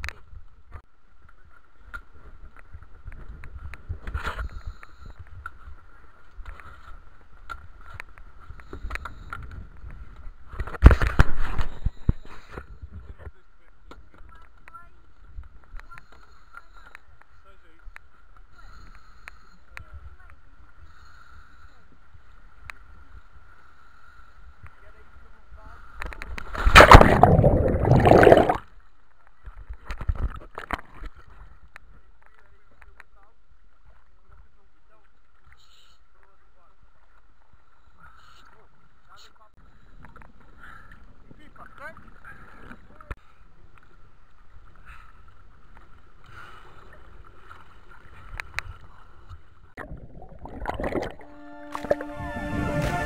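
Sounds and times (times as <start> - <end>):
rushing water: 26.6 - 28.6, 49.8 - 53.0
regulator bubbling: 26.7 - 28.6, 49.8 - 52.0
background music: 51.2 - 53.0.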